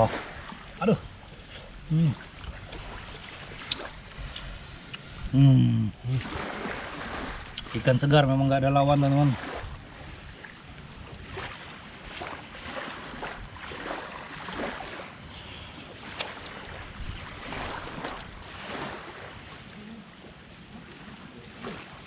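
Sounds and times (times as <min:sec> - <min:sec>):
small waves washing on sand: 0:00.0 - 0:01.0, 0:06.0 - 0:22.0
wind: 0:00.0 - 0:22.0.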